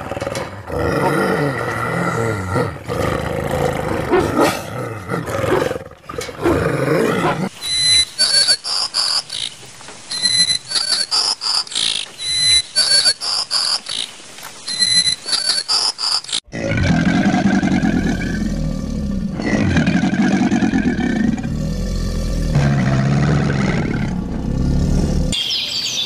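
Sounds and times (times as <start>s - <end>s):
wolf growling: 0.0s - 7.5s, 16.5s - 25.4s
woodpecker high repeated calls: 7.5s - 16.4s.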